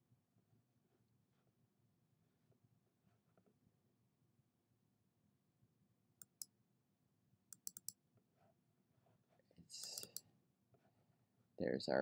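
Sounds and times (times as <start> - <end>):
computer mouse clicks: 6.2 - 6.5, 7.5 - 8.0, 9.8 - 10.2.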